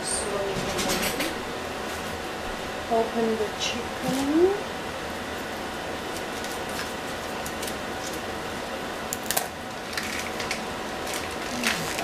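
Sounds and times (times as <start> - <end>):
plastic packaging crinkling: 9.2 - 12.0.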